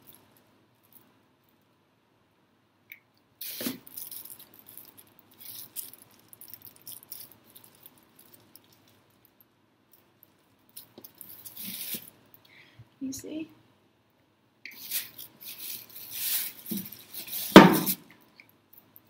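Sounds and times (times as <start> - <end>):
plastic bag crinkling: 3.4 - 9.4, 10.2 - 12.2, 14.8 - 18.2.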